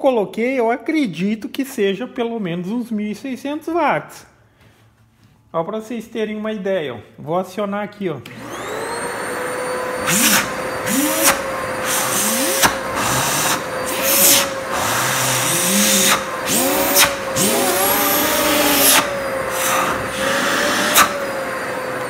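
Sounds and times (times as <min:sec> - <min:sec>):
vacuum cleaner whine: 0:08.3 - 0:22.0.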